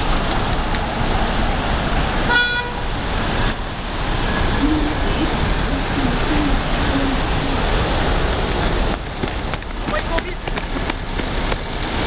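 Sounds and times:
bus and cars driving past: 0.0s - 12.0s
short vehicle horn toot: 2.3s - 2.8s.

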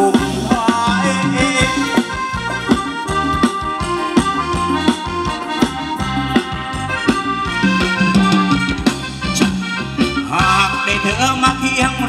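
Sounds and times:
held-note melody: 0.0s - 10.4s
bass: 0.0s - 12.0s
steady drum beat: 0.0s - 12.0s.

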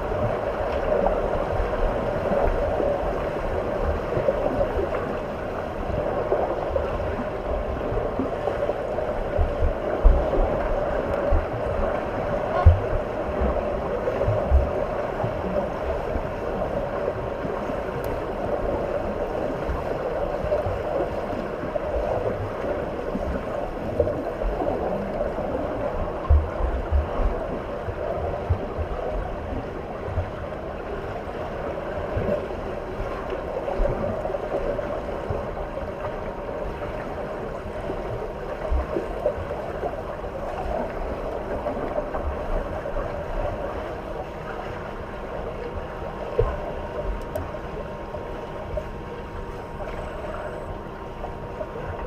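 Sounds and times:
water rushing and sloshing: 0.0s - 52.0s.

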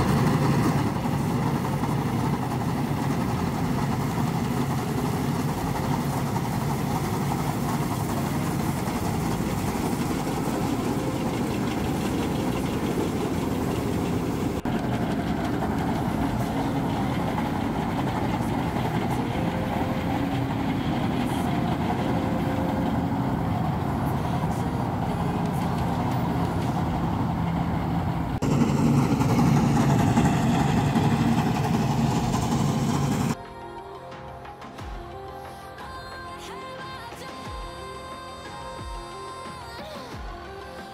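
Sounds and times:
combine harvester running: 0.0s - 34.8s.

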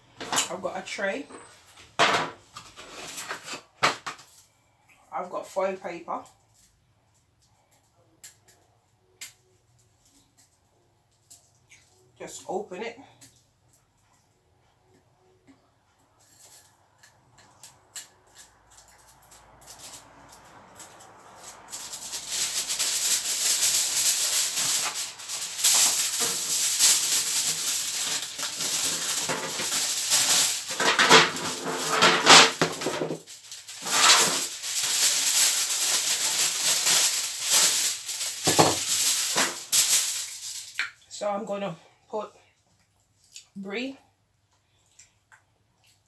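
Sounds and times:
aluminium foil crinkling: 2.5s - 4.8s, 16.2s - 41.1s.

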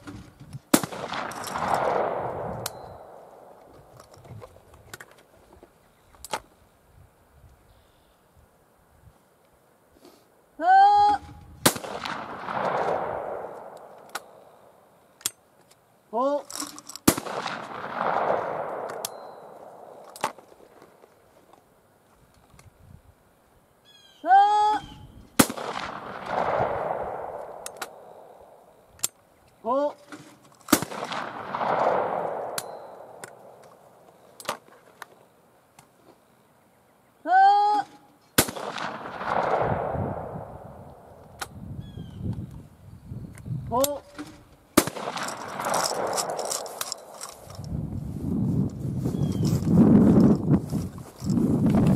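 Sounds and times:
shotgun report echoing: 0.7s - 3.9s, 11.6s - 14.8s, 17.0s - 21.0s, 25.4s - 28.8s, 30.7s - 34.2s, 38.4s - 41.6s, 44.1s - 47.7s
person shouting pull: 10.6s - 11.4s, 24.2s - 25.0s, 37.3s - 38.0s
faint gun handling clicks: 11.7s - 22.8s, 25.6s - 36.0s, 43.3s - 47.8s.

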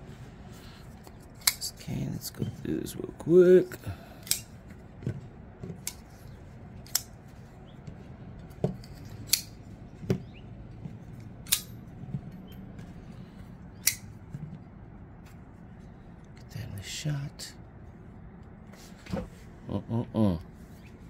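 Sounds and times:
quiet handling: 0.0s - 16.5s
folding knife metallic clicks: 4.2s - 4.5s, 6.8s - 7.1s, 9.3s - 9.5s, 11.4s - 11.7s, 13.8s - 14.1s.

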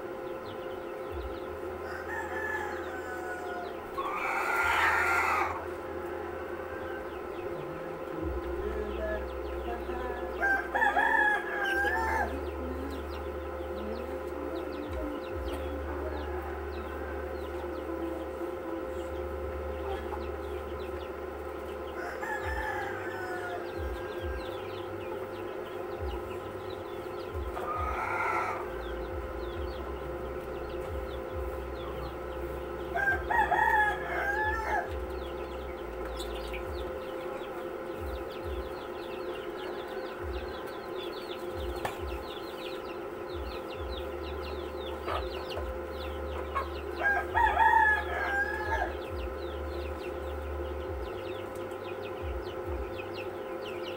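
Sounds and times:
roosters crowing: 0.0s - 53.9s
steady low hum: 0.0s - 53.9s.

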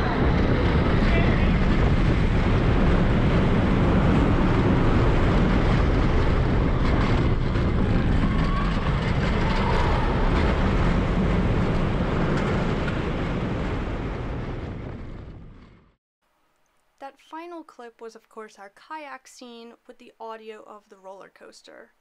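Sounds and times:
roller coaster rumbling on track: 0.0s - 15.9s.

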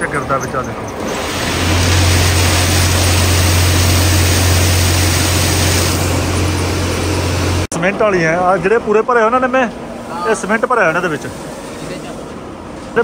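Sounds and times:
machine drone with low hum: 1.1s - 7.7s.

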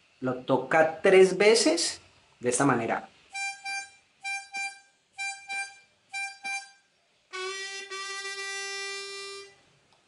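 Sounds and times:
harmonica long low bent note: 3.3s - 9.7s
harmonica short high notes: 3.3s - 9.7s.

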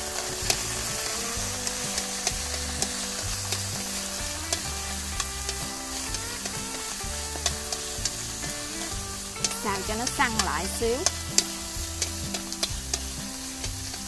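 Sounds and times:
food sizzling in a wok: 0.0s - 14.0s
chopsticks clicking against pan: 0.1s - 14.0s.

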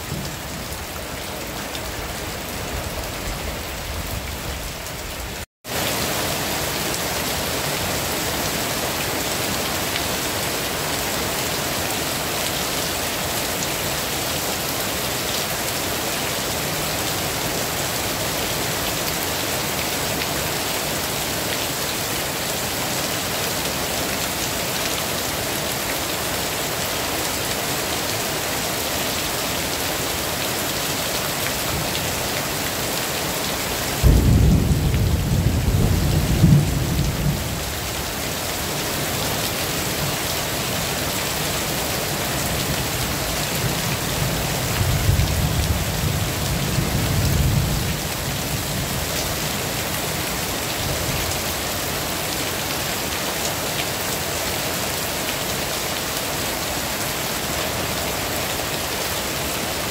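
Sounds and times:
heavy rain falling: 0.0s - 59.9s
thunder rumbling: 34.0s - 37.7s.

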